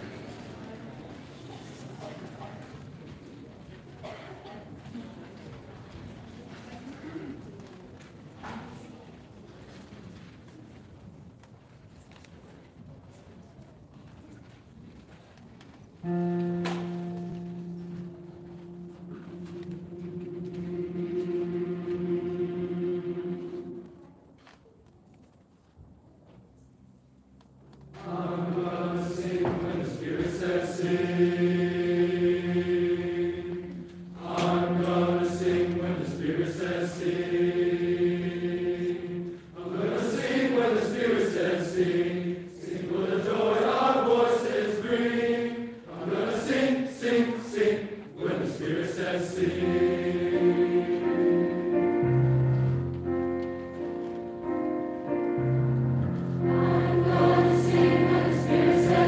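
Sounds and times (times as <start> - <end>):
children's choir singing: 0.0 - 2.6, 16.0 - 24.2, 28.0 - 59.0.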